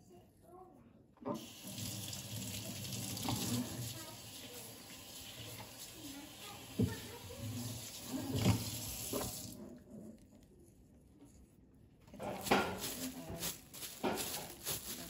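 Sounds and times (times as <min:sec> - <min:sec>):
plastic glove crinkling: 0:12.2 - 0:15.0
salt and pepper pattering on meat: 0:12.4 - 0:15.0.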